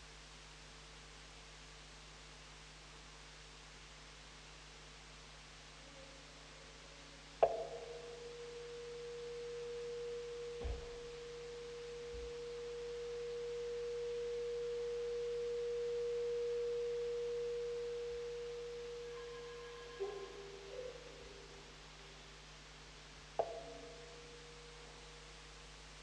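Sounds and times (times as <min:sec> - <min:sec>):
steady pure tone: 0:00.8 - 0:26.0
soft knock: 0:10.6 - 0:11.2.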